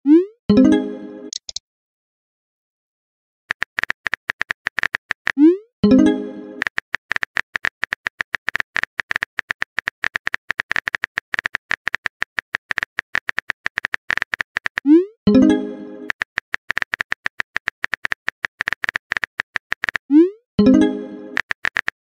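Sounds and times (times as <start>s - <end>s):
keyboard tap clicks: 1.3s - 1.6s.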